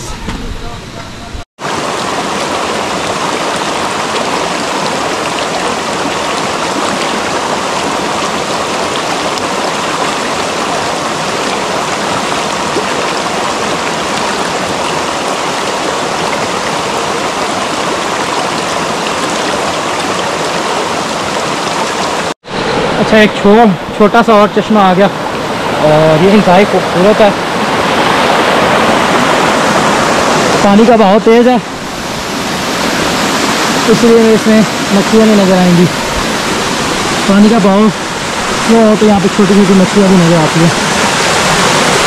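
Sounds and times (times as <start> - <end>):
stream water rushing: 1.6 - 42.0.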